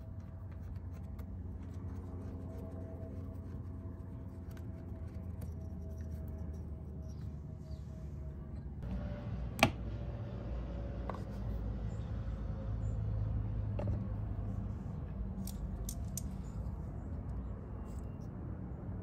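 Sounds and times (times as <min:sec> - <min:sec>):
steady low hum: 0:00.0 - 0:19.0
clicks of scooter parts and tools: 0:15.4 - 0:16.4.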